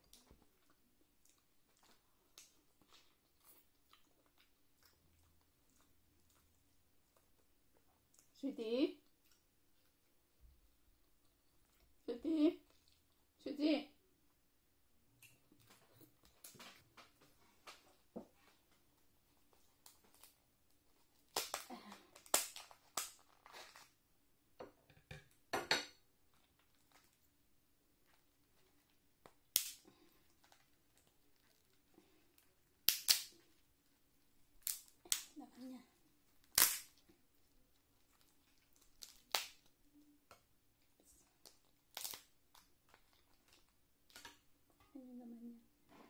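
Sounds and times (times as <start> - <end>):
shell cracking apart: 21.3 - 23.8, 32.8 - 33.4, 36.4 - 37.0, 38.8 - 39.7, 41.9 - 43.0
lobster shell cracking: 36.4 - 37.0, 41.9 - 43.1.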